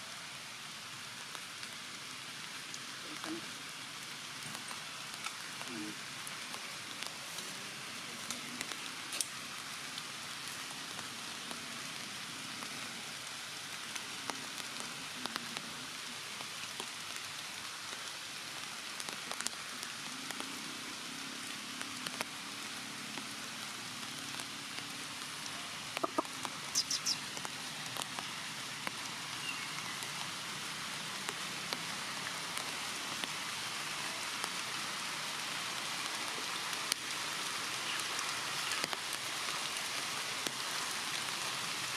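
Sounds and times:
light rain on foliage: 0:00.0 - 0:41.9
dripping ticks: 0:24.3 - 0:30.2.

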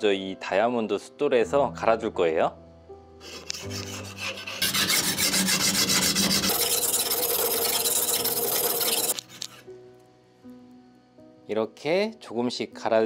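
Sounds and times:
knife grinding on sharpening plate: 0:03.3 - 0:09.6.

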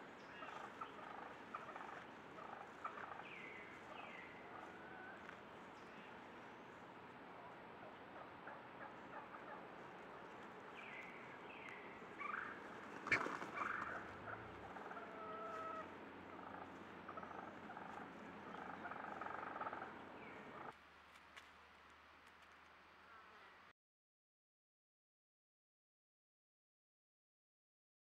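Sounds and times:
birds calling: 0:00.0 - 0:20.7.

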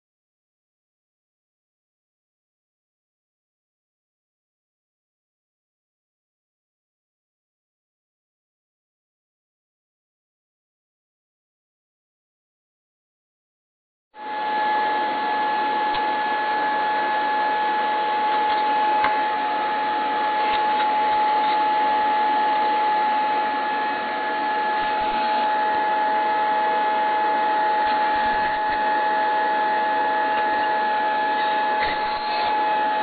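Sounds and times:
car radio whistling tone: 0:14.2 - 0:33.0.

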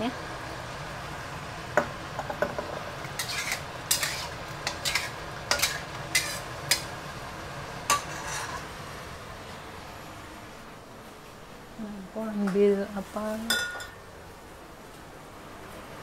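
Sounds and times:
metal spoon scraping wok: 0:03.0 - 0:06.9, 0:07.9 - 0:08.7.

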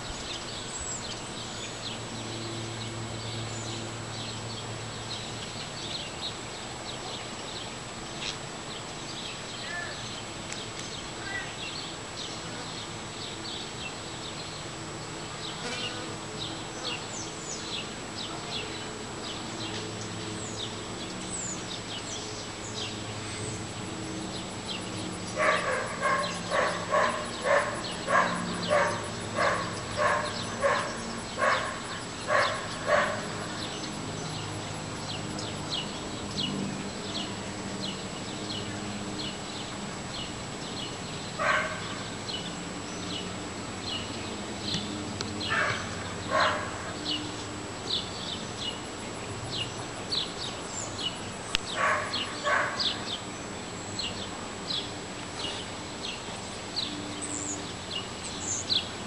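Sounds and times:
dog barking: 0:25.4 - 0:33.3, 0:41.4 - 0:41.8, 0:45.5 - 0:46.7, 0:51.7 - 0:53.0.

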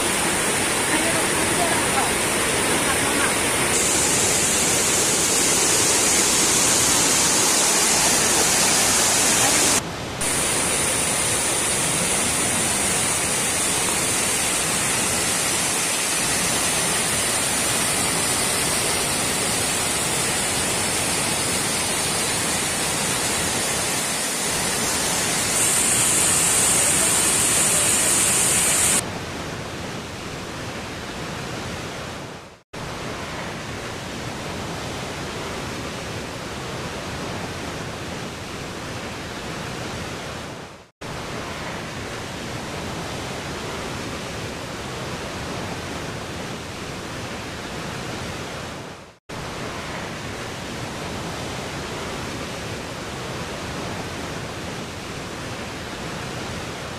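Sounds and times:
waterfall rushing over rocks: 0:00.0 - 0:29.0.

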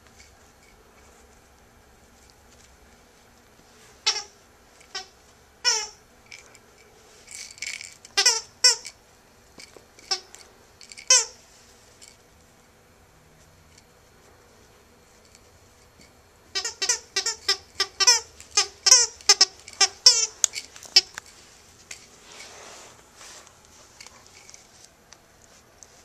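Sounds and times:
toy squeaker squeaks: 0:04.1 - 0:06.0, 0:07.6 - 0:09.0, 0:10.9 - 0:11.4, 0:16.5 - 0:21.2.

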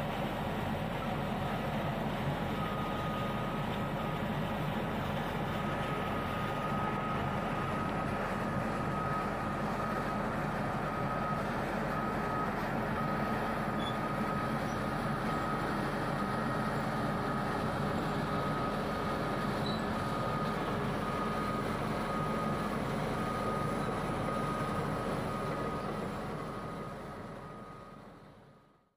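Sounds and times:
bulldozer diesel engine running: 0:00.0 - 0:28.7
back-up alarm beeping: 0:02.6 - 0:04.2, 0:05.6 - 0:28.0.

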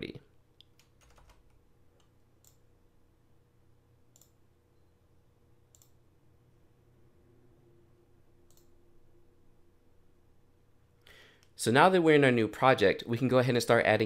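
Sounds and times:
low room hum: 0:00.0 - 0:14.0
computer mouse clicks: 0:02.0 - 0:02.6, 0:04.1 - 0:04.4, 0:05.7 - 0:06.0, 0:08.4 - 0:08.7.

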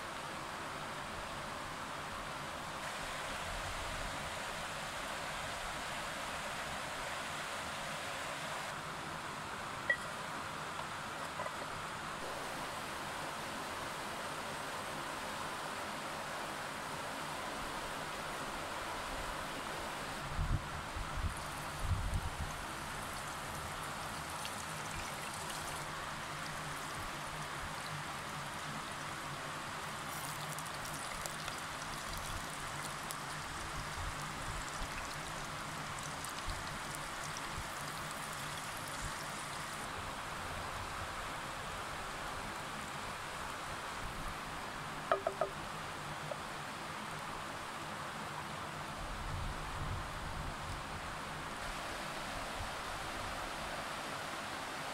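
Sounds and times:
faint fire crackling: 0:21.0 - 0:39.9
potatoes sizzling in oil: 0:21.3 - 0:39.9
short high tones: 0:45.1 - 0:45.6.

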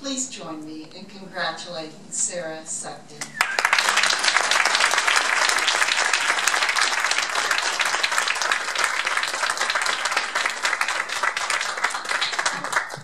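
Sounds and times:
audience applauding: 0:03.4 - 0:13.0.

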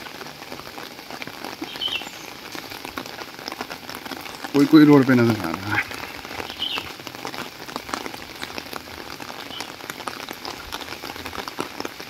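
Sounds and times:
steady rain falling: 0:00.0 - 0:12.0.

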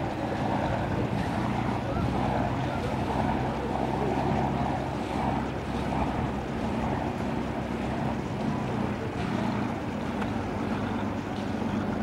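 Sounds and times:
boat engine drone: 0:00.0 - 0:12.0
hiss of wind and water: 0:00.0 - 0:12.0.

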